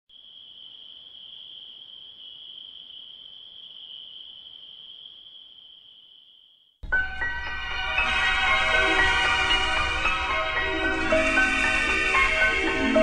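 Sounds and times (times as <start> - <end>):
crickets chirping: 0.1 - 6.8.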